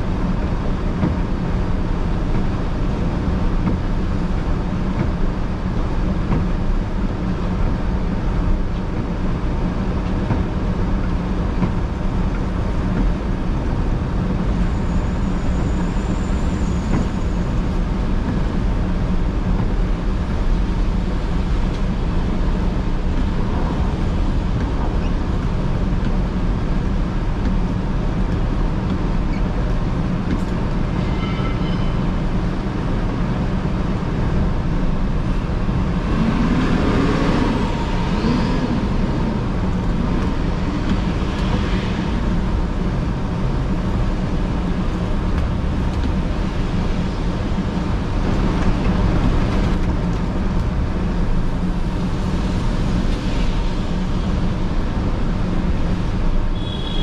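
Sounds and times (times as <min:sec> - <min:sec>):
tyres and engines rumbling: 0:00.0 - 0:57.0
brief high tone: 0:31.1 - 0:32.0.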